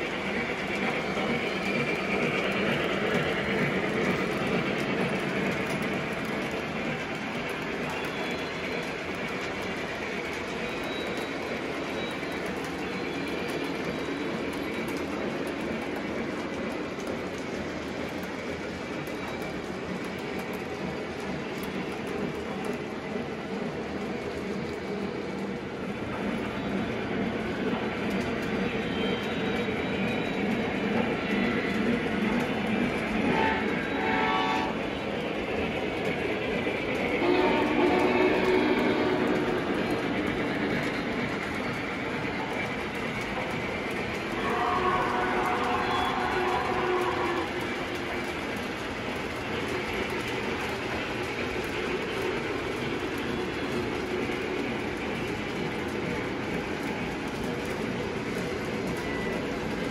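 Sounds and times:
model train clickety-clack on rails: 0.0s - 59.9s
train horn: 33.2s - 34.8s, 37.2s - 39.5s, 44.3s - 47.6s.

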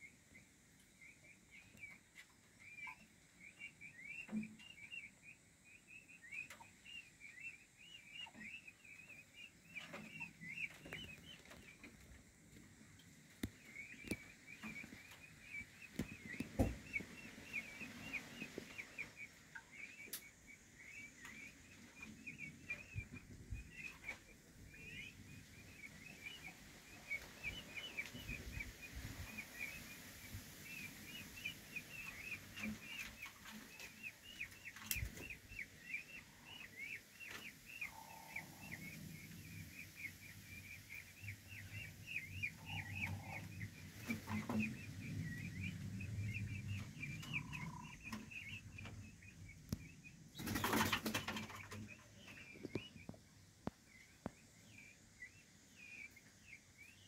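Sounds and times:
chicks peeping: 6.0s - 57.0s.

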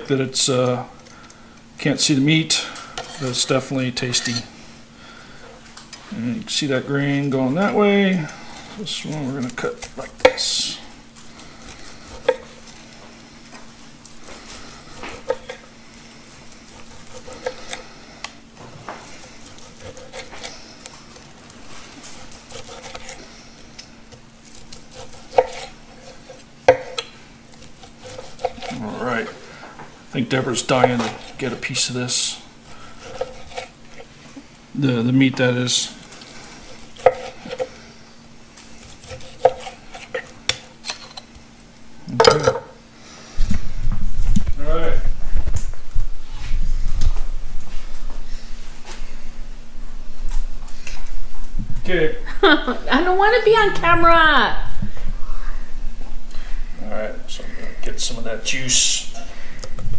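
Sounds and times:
knife sawing through meat: 7.4s - 12.9s, 16.2s - 18.2s, 19.0s - 26.7s, 27.5s - 29.5s, 30.4s - 34.1s, 36.2s - 38.0s, 38.6s - 40.4s.

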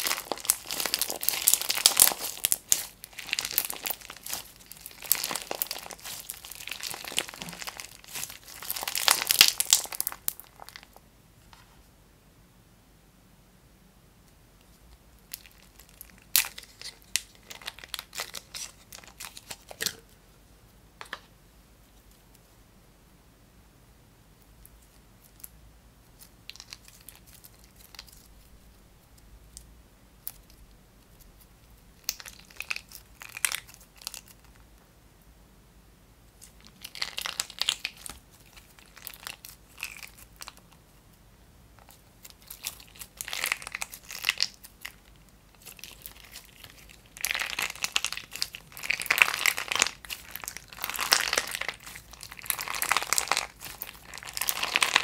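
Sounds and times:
slime crackling and popping: 0.0s - 11.0s, 15.2s - 20.0s, 26.2s - 28.5s, 32.0s - 34.6s, 36.4s - 40.8s, 41.8s - 55.0s.

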